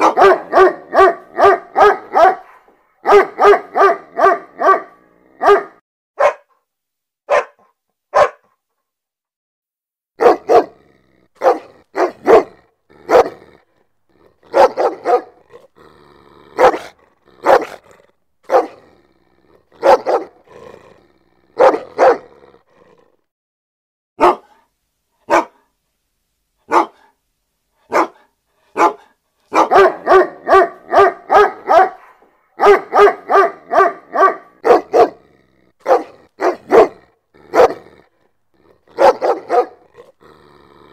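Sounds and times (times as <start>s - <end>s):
dog barking: 0.0s - 6.6s, 7.3s - 8.6s, 10.2s - 10.8s, 11.4s - 13.5s, 14.5s - 15.4s, 16.6s - 18.8s, 19.8s - 20.4s, 21.6s - 22.3s, 24.2s - 25.7s, 26.7s - 27.2s, 27.9s - 35.2s, 35.8s - 37.9s, 38.9s - 39.9s.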